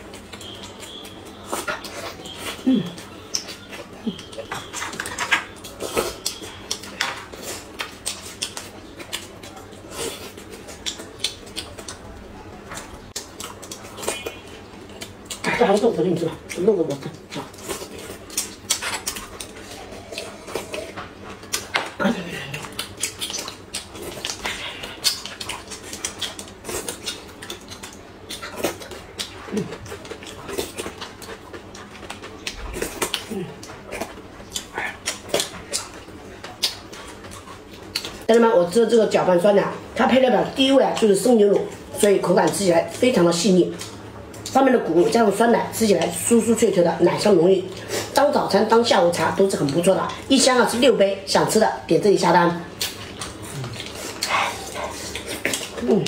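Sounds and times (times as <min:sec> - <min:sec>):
mouth smacks and chewing: 0:00.0 - 0:15.6, 0:16.3 - 0:38.3, 0:52.7 - 0:56.0.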